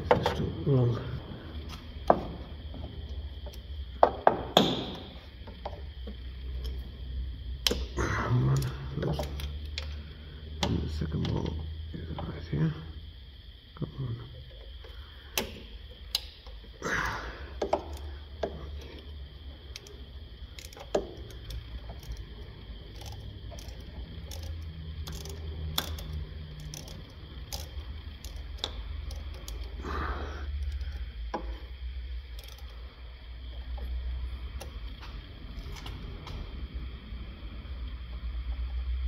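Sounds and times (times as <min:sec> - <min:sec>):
tools clicking and knocking: 0:00.0 - 0:00.6, 0:17.6 - 0:19.1, 0:20.6 - 0:22.3, 0:22.9 - 0:29.7, 0:32.3 - 0:32.7
steady low hum: 0:00.0 - 0:39.0.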